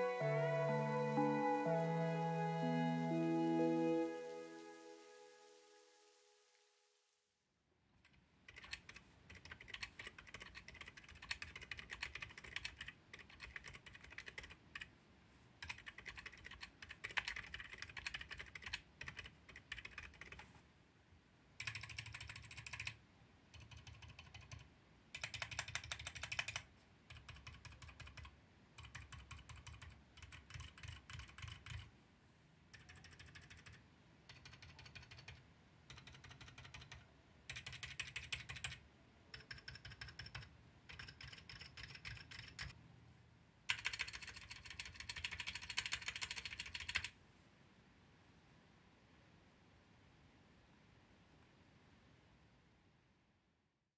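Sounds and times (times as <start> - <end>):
quiet keyboard keystrokes: 8.0 - 14.9, 15.6 - 20.5, 21.6 - 31.9, 32.7 - 42.8, 43.7 - 47.1.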